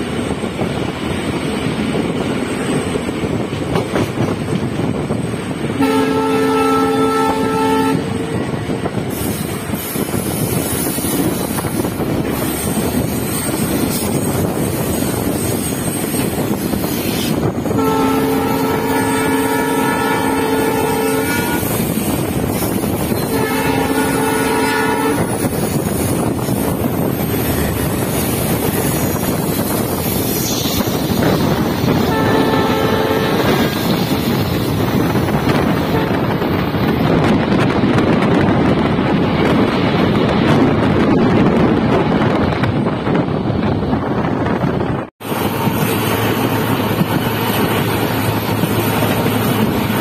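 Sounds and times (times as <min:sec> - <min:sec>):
moving train rushing: 0:00.0 - 0:50.0
wind on microphone: 0:00.0 - 0:50.0
train horn blasts: 0:05.8 - 0:08.2, 0:17.6 - 0:22.2, 0:23.1 - 0:25.5, 0:31.9 - 0:34.1, 0:35.2 - 0:36.5.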